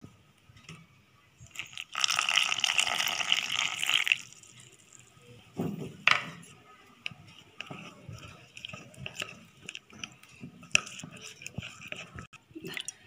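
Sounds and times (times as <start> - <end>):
spoon clinking and scraping bowl: 7.4 - 12.4.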